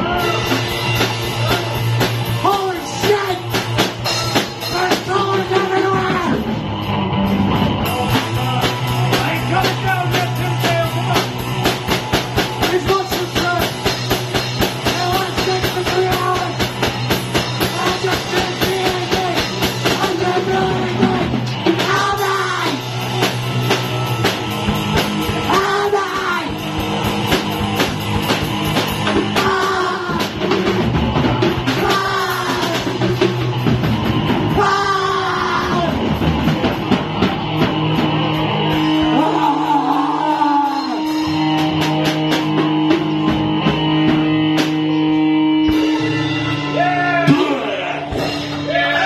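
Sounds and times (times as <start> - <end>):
drum kit: 0.0 - 49.0
electric guitar: 0.0 - 49.0
male lead vocal: 17.7 - 22.8, 25.5 - 26.6, 29.3 - 30.4, 31.8 - 33.0, 34.5 - 36.0, 39.1 - 41.2.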